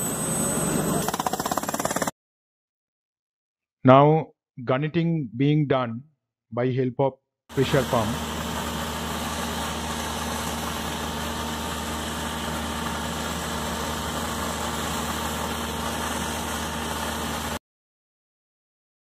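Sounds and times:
pump engine running: 7.5 - 17.6.

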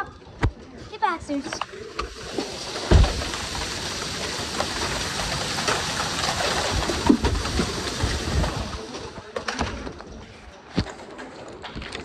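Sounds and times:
heavy rain hissing: 1.8 - 9.2
hailstones ticking: 2.3 - 8.9.

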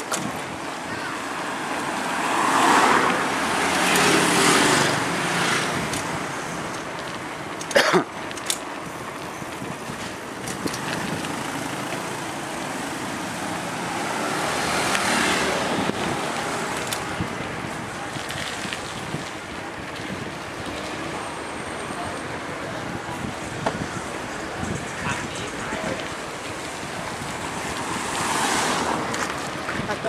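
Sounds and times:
road traffic hiss and rumble: 0.0 - 30.0.

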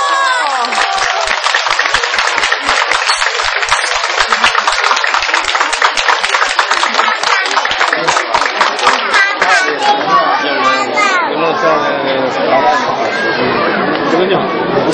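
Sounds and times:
crowd applauding: 0.0 - 11.1.

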